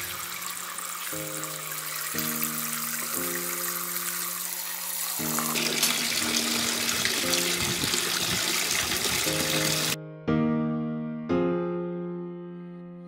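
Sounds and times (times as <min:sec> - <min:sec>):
soft piano music: 0:00.0 - 0:13.0
waterfall splashing into pool: 0:05.0 - 0:10.0.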